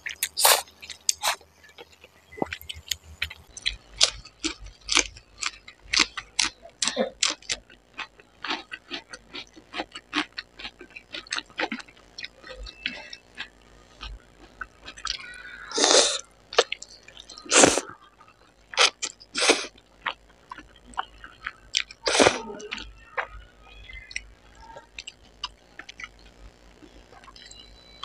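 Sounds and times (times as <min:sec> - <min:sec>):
wet chewing clicks: 0:00.0 - 0:15.4, 0:16.5 - 0:27.6
person slurping noodles: 0:00.2 - 0:01.4, 0:15.8 - 0:16.2, 0:17.5 - 0:17.9.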